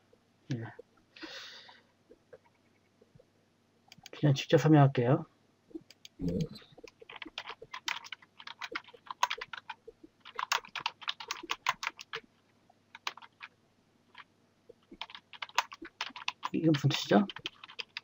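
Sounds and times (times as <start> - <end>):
typing on computer keyboard: 5.9 - 12.2, 12.9 - 13.5, 14.1 - 18.0.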